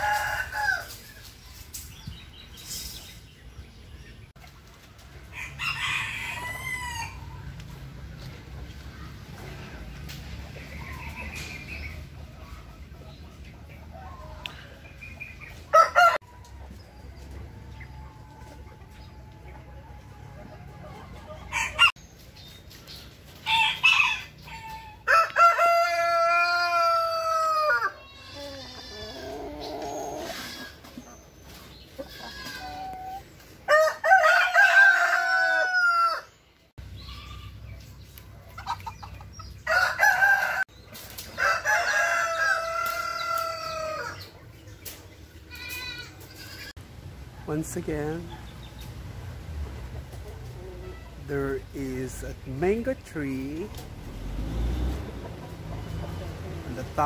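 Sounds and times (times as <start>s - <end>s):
roosters crowing: 0.0s - 1.3s, 5.1s - 7.9s, 13.4s - 22.0s, 23.3s - 57.0s
hens clucking: 4.3s - 22.0s, 25.6s - 33.8s, 37.1s - 46.8s, 47.5s - 57.0s.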